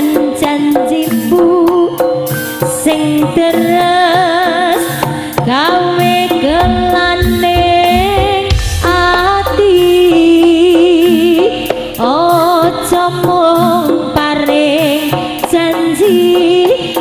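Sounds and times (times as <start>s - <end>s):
hand drums beating quickly: 5.4s - 17.0s
deep low tone: 6.4s - 12.0s.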